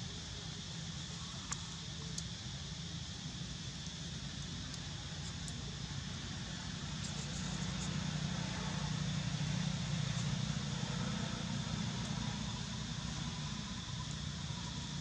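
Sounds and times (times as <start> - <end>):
low engine hum: 4.3 - 15.0.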